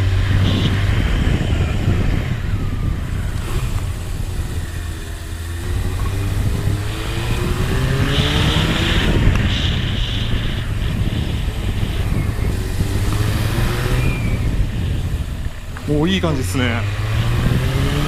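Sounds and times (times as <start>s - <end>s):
motorcycle engine revving: 0.0s - 18.0s.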